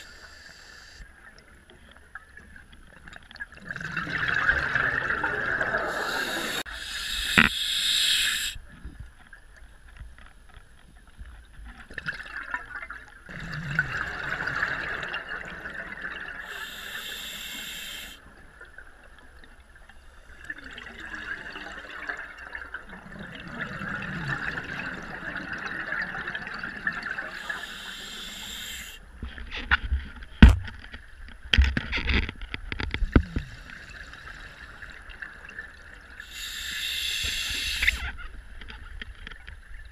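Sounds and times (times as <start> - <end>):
underwater breathing bubbles: 3.6 - 8.6, 13.3 - 18.2, 23.3 - 29.0, 36.2 - 38.2.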